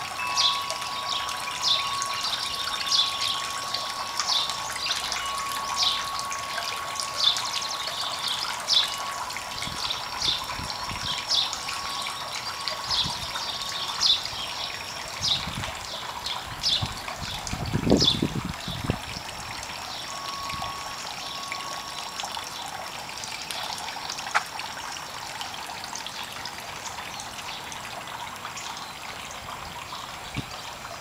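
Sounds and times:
fountain trickling: 0.0 - 31.0
bird chirping: 0.2 - 17.4, 19.8 - 22.8.

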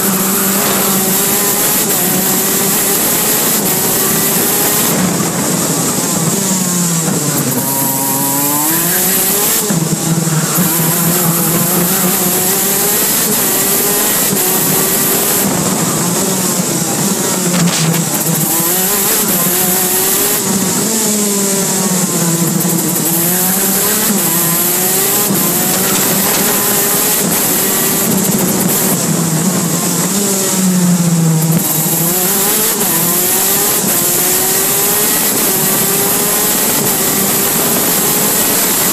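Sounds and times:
two-stroke kart engine revving: 0.0 - 38.9.

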